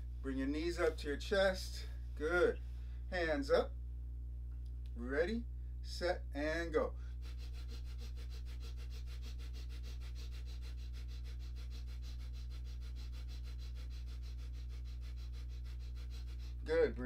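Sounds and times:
steady low hum: 0.0 - 17.0
man breathing rapidly through nose: 7.0 - 16.7.

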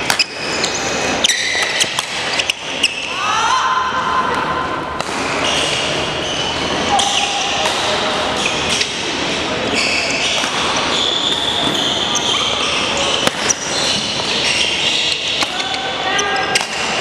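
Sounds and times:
shoes squeaking on gym floor: 0.0 - 3.1, 5.4 - 7.5, 8.4 - 16.6.

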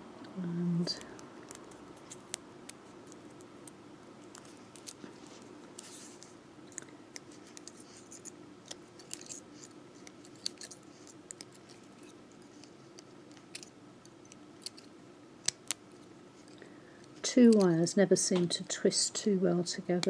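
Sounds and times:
faint steady hum: 0.0 - 20.0
pliers clicking and scratching wire: 10.0 - 15.8, 17.3 - 17.8.

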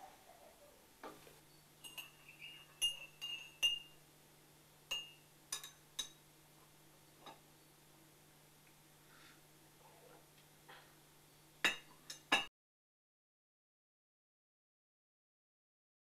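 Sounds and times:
teaspoon clinking on tea cup: 1.8 - 3.9, 4.9 - 6.2.

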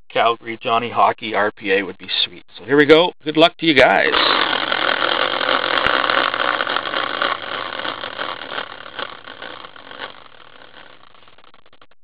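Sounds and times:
prize wheel rattling whir: 3.8 - 11.8.

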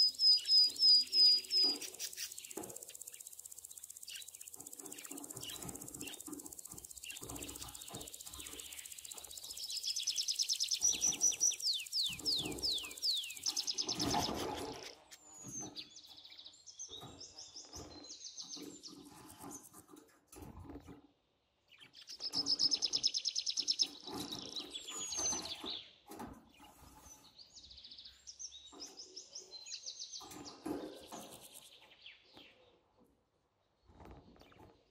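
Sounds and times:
budgerigar warbling and chirping: 0.0 - 3.3, 3.9 - 15.0
wings fluttering: 0.7 - 15.2.

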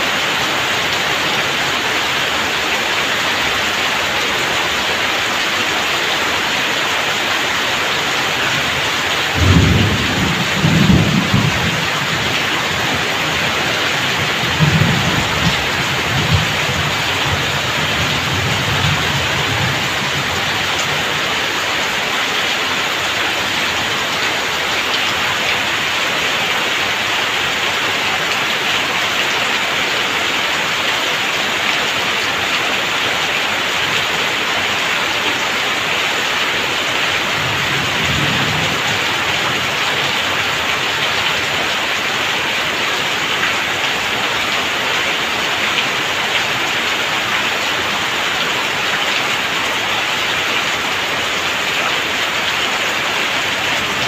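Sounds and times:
rain hissing on roofs: 0.0 - 54.0
thunder rumbling: 9.3 - 21.3.

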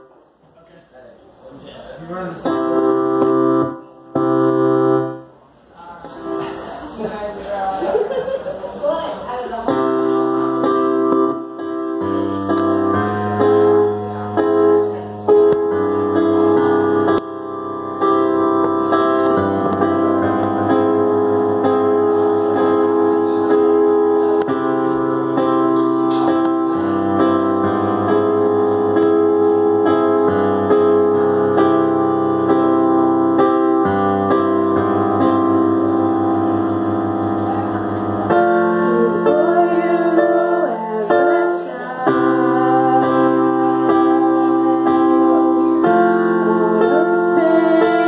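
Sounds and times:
keyboard playing held chords: 2.1 - 5.4, 9.6 - 48.0
woman singing: 38.8 - 48.0.

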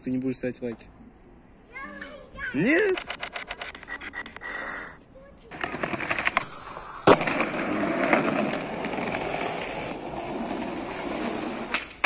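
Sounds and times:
skateboard wheels rolling on concrete: 1.7 - 12.0
skateboard clack: 5.5 - 12.0.

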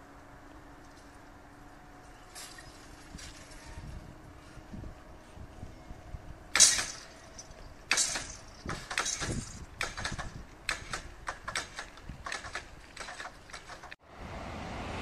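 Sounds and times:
light metallic clicks and clatter: 6.8 - 14.0.

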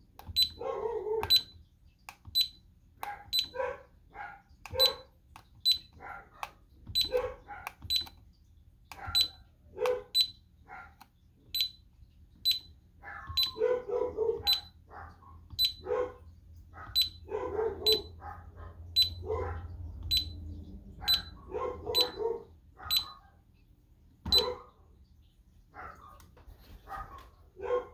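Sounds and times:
keypad beeps: 0.2 - 0.6, 1.2 - 1.6, 2.2 - 3.6, 4.7 - 6.0, 6.9 - 8.2, 9.0 - 9.4, 10.1 - 10.4, 11.5 - 13.7, 14.4 - 14.7, 15.5 - 15.9, 16.9 - 18.1, 19.0 - 19.2, 20.0 - 22.2, 22.9 - 23.1, 24.3 - 24.5
dog barking: 0.4 - 1.5, 3.0 - 5.1, 5.7 - 8.0, 8.9 - 11.0, 13.0 - 20.3, 20.9 - 23.4, 24.3 - 24.8, 25.7 - 27.9.

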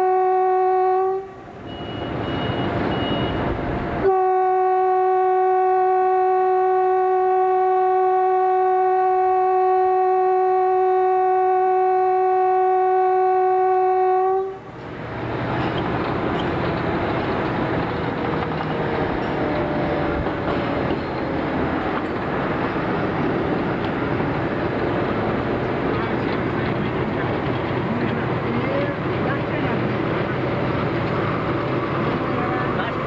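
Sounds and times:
train horn blast: 0.0 - 1.6, 4.0 - 14.7
moving train noise: 0.0 - 33.0.

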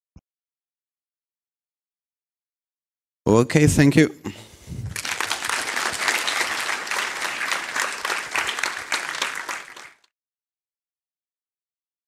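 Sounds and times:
audience applauding: 4.9 - 10.1.

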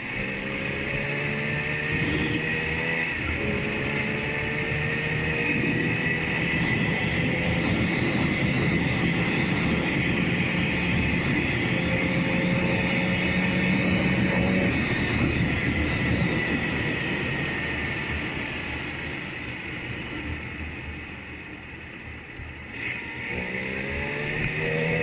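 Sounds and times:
motorcycle engine cruising: 0.0 - 25.0
road and wind noise: 0.0 - 25.0.

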